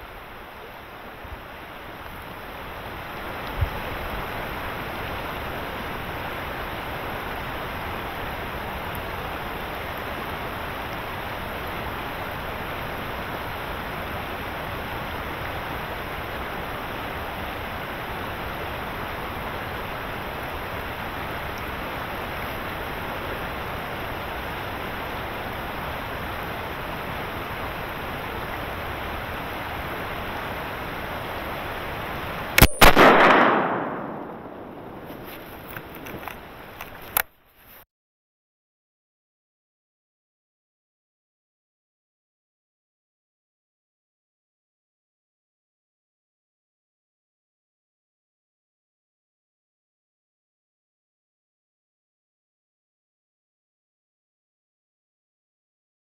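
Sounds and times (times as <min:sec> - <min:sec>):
steady rushing noise: 0:27.6 - 0:36.8
shotgun blast: 0:32.6 - 0:35.3.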